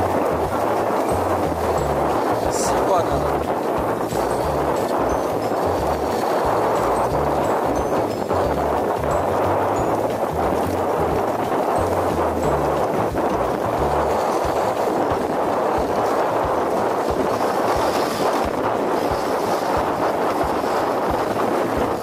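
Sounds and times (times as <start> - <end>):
sled runners hissing on snow: 0.0 - 22.0.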